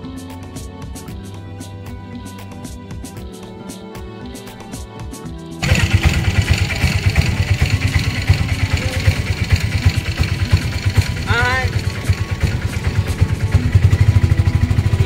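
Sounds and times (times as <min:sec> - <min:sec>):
background music: 0:00.0 - 0:15.0
road noise: 0:05.6 - 0:15.0
small engine putter: 0:05.6 - 0:15.0.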